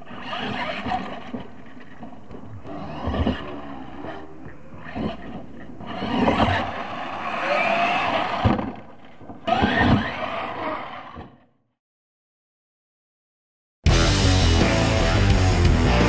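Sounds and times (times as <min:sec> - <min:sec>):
toy truck motor whining: 0:00.0 - 0:01.4, 0:02.7 - 0:08.8, 0:09.4 - 0:11.5.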